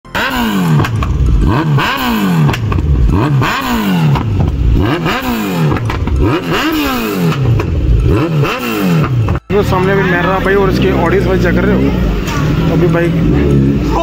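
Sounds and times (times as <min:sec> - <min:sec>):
exhaust cracks: 0:00.1 - 0:09.8
motorcycle engine revving: 0:00.1 - 0:14.0.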